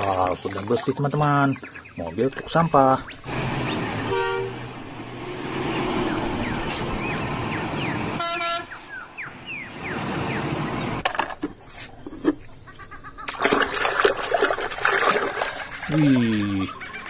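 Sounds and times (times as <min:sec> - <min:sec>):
birds chirping: 0:00.1 - 0:13.4, 0:15.1 - 0:17.0
truck horn toots: 0:03.8 - 0:04.7, 0:08.2 - 0:08.8.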